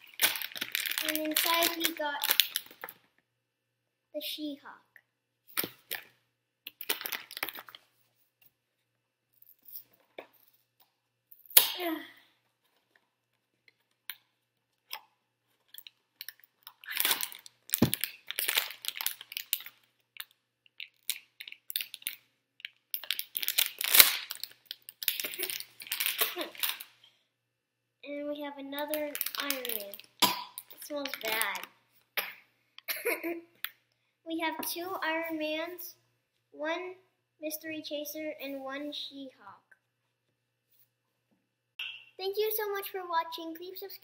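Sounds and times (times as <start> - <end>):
foil wrapper crinkling and tearing: 0.0 - 3.0, 6.7 - 7.8, 15.6 - 26.9, 28.9 - 30.2, 31.0 - 31.7.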